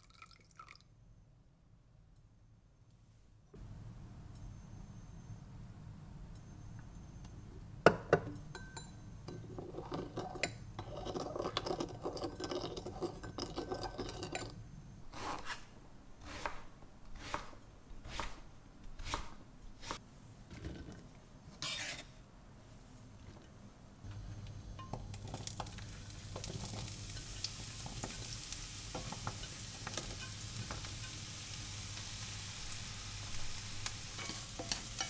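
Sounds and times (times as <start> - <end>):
dishes and utensils clattering: 8.0 - 14.6, 34.2 - 35.0.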